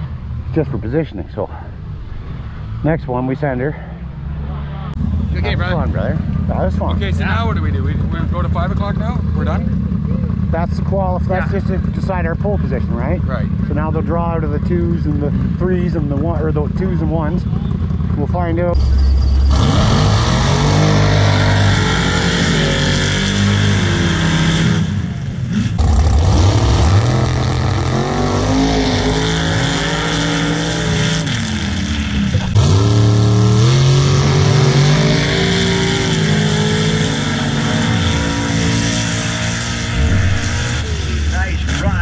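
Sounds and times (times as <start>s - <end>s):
off-road vehicle engines revving: 0.0s - 42.0s.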